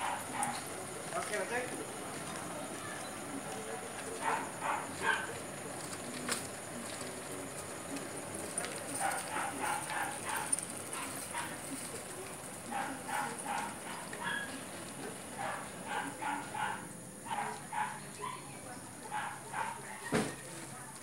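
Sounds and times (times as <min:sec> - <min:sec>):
dog barking yappy barks: 0:00.0 - 0:00.6, 0:04.2 - 0:05.3, 0:09.0 - 0:11.6, 0:12.7 - 0:14.6, 0:15.4 - 0:18.5, 0:19.1 - 0:20.0.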